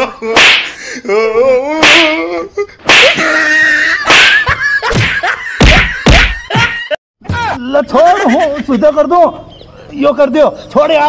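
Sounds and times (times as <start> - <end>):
slaps and punches: 0.3 - 0.8, 1.8 - 2.2, 2.9 - 3.2, 4.1 - 6.4
people yelling and crying: 5.7 - 8.3.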